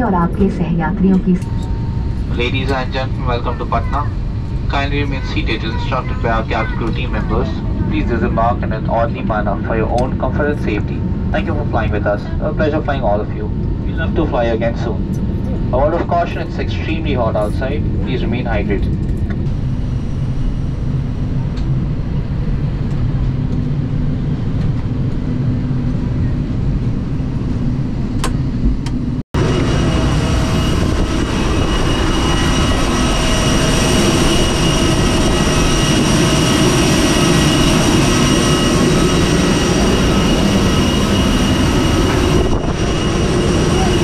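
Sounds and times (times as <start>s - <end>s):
aircraft machinery hiss and whine: 0.0s - 44.0s
low aircraft rumble: 0.0s - 44.0s.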